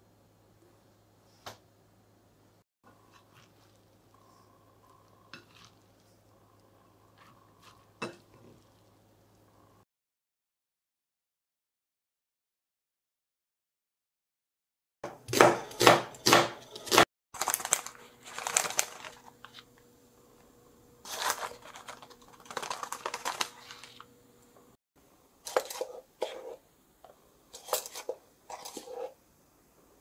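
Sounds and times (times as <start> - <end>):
knife chopping onion on board: 15.1 - 17.0
plastic bag crinkling: 17.4 - 19.7, 21.0 - 24.1.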